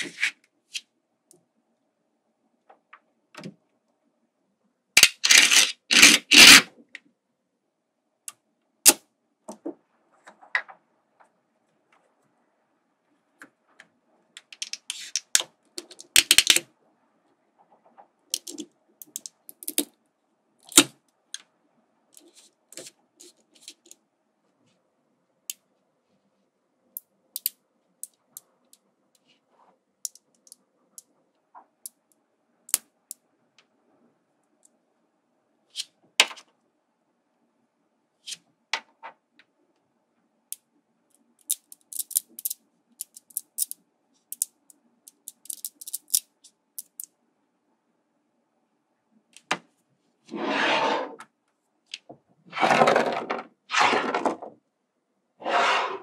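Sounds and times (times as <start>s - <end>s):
magnetic balls clicking: 41.1s - 47.1s.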